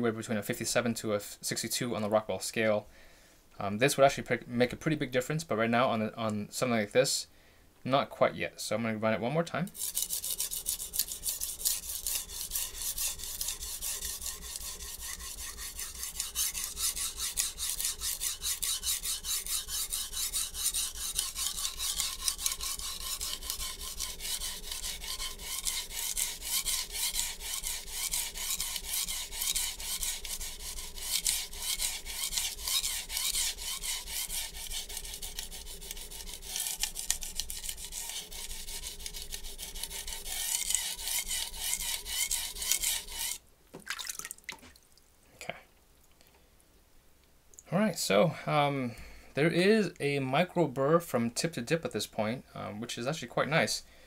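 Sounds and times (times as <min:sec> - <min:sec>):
knife scraping on whetstone: 0:09.7 - 0:43.4.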